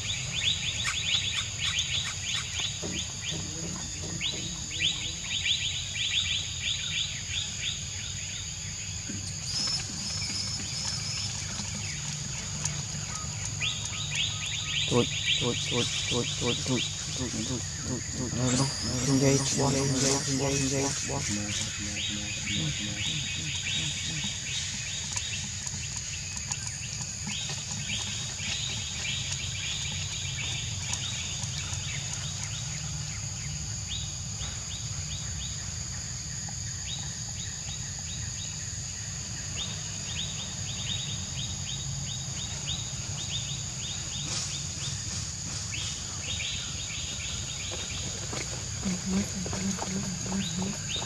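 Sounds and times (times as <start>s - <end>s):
fast chirping trills: 13.2s - 25.1s
high-pitched insect drone: 14.9s - 24.6s.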